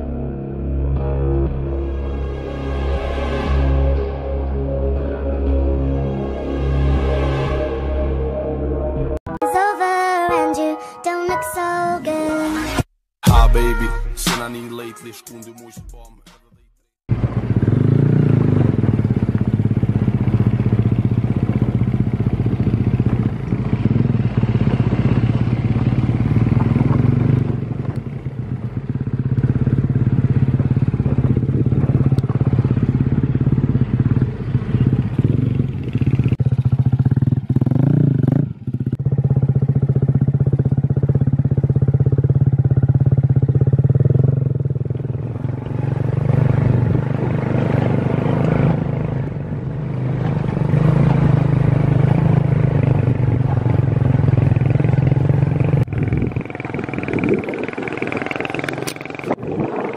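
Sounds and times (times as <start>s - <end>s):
motorcycle engine running: 17.1s - 59.9s.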